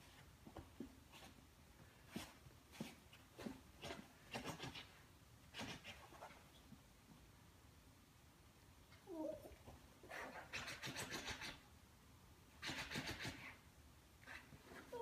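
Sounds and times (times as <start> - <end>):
puppy paws scratching duvet: 0.0 - 6.6.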